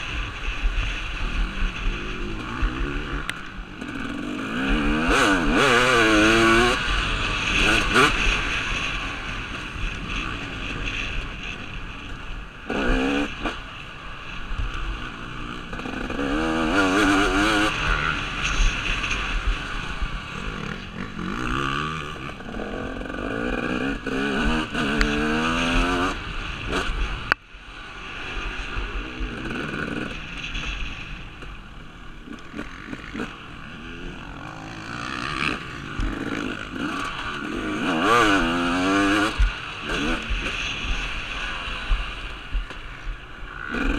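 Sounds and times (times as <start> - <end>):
motocross engine revving: 1.2 - 10.6, 12.7 - 13.6, 14.9 - 27.1, 32.2 - 42.1.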